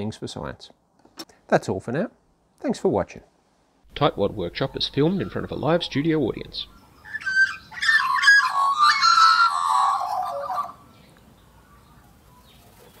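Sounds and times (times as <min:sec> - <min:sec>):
magpies carolling: 0:03.9 - 0:10.9.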